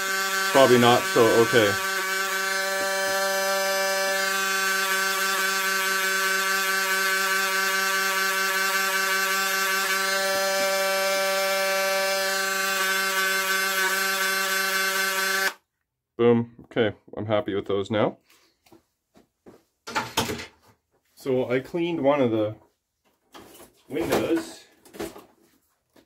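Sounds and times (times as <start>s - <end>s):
rotary tool motor whine: 0.0s - 15.6s.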